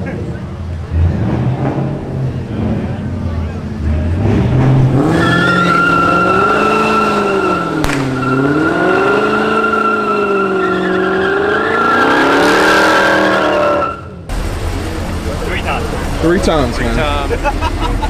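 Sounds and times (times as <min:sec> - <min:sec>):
car engine revving: 0:00.0 - 0:18.0
tyres squealing: 0:05.0 - 0:12.4
sharp crack: 0:07.8 - 0:08.4.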